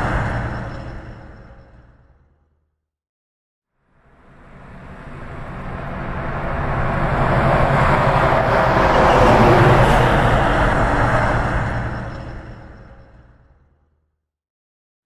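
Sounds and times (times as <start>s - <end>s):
truck driving past fast: 4.4s - 12.7s.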